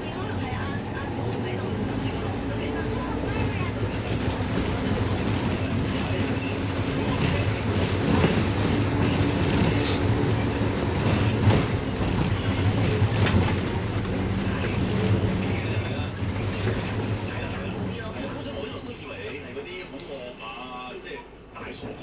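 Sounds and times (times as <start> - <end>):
bus engine hum: 0.0 - 22.0
road noise: 0.0 - 22.0.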